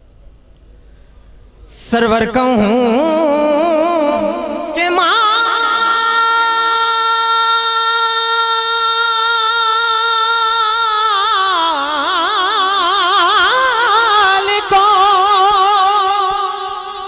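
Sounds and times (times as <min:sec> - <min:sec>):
man singing into a microphone: 0:01.7 - 0:17.0.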